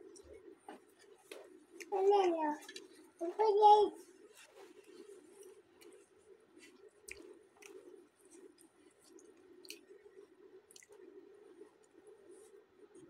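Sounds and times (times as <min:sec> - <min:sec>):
chewing and mouth clicks: 0:04.3 - 0:13.0.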